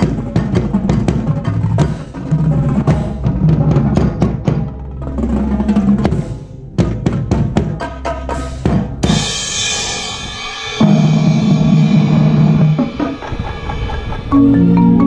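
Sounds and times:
sustained low band chords: 0.0s - 12.7s, 14.3s - 15.0s
cymbal crash: 8.3s - 14.3s
marimba mallet notes: 14.2s - 15.0s.

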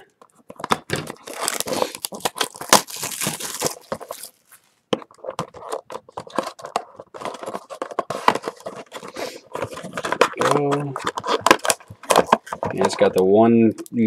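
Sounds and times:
plastic wrap tearing and crinkling: 0.8s - 4.7s
cardboard box rustling and knocking: 4.9s - 13.2s.

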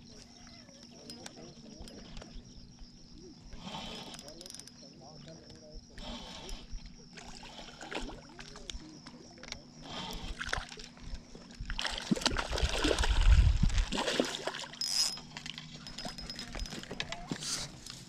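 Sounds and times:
fish splashing and thrashing in water: 10.2s - 17.0s.

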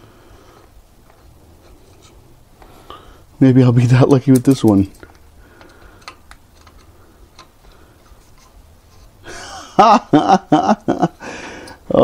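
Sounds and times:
screw scraping: 0.6s - 2.3s, 4.3s - 9.2s.

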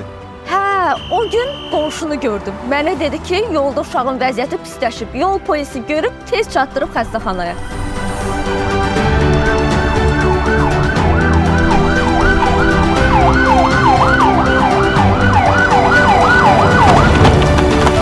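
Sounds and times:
background music with bass: 7.2s - 18.0s
police siren yelp: 10.2s - 17.3s.

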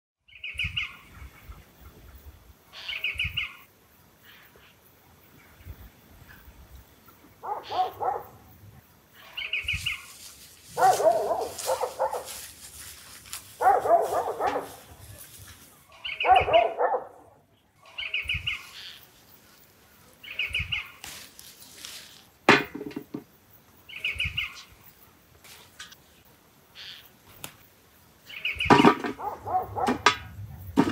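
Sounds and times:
dog barking: 7.4s - 8.5s, 10.8s - 12.4s, 13.6s - 15.2s, 16.2s - 17.4s, 29.1s - 30.7s.

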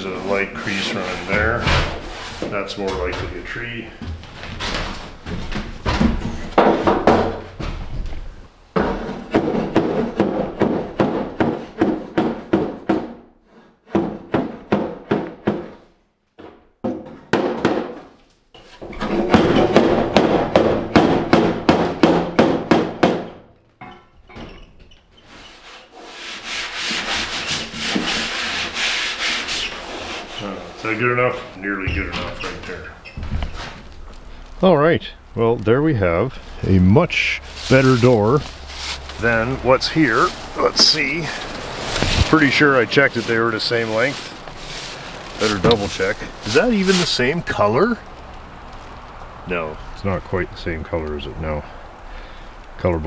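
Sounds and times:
rubbing on sheet-metal car door: 25.2s - 31.0s, 37.5s - 47.2s.

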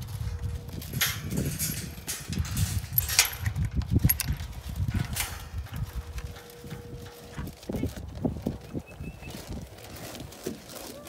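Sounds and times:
wind buffeting microphone: 0.0s - 10.8s
metal gate latch rattling: 0.1s - 7.4s.

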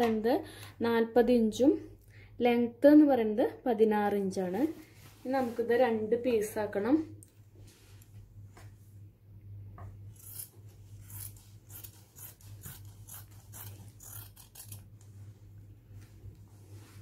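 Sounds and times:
scissors snipping fabric: 10.2s - 14.9s.

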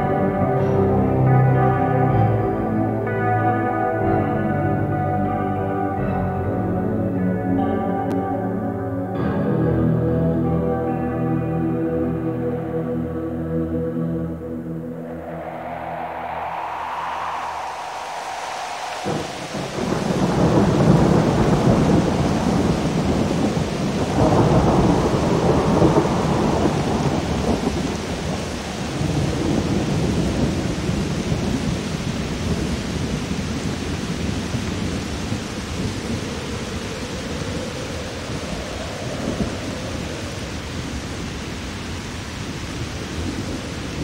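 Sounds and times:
steady rain: 0.0s - 44.0s
thunder rolling: 14.8s - 41.6s.

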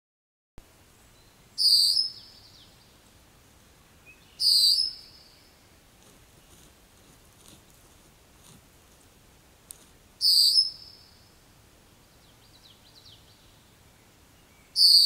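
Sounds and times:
bird's loud high call: 1.6s - 2.3s, 4.4s - 5.2s, 14.8s - 15.0s.

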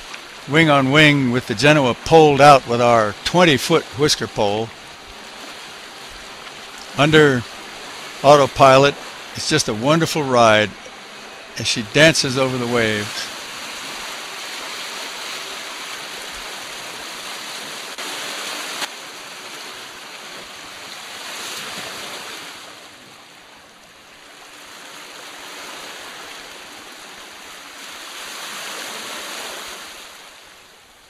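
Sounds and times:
water rushing along hulls: 0.0s - 31.0s.

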